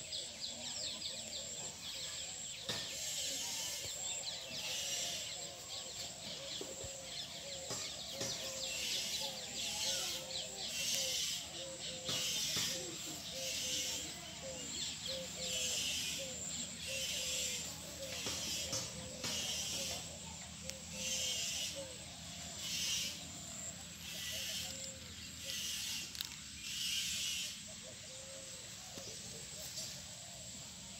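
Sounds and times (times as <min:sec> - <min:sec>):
birds chirping: 0:00.0 - 0:30.9.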